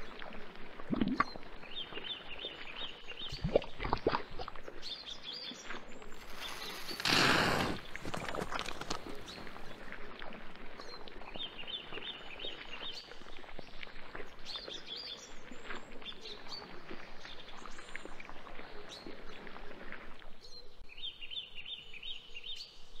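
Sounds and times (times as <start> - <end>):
quicksand squelching and bubbling: 0.0 - 20.4
birds chirping: 1.1 - 9.9.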